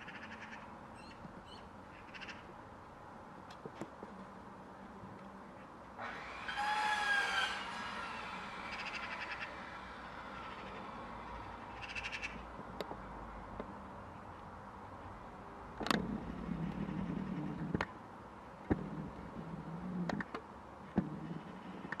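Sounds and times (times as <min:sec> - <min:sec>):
low hum: 0:06.0 - 0:13.8
magpies chattering: 0:08.6 - 0:12.4.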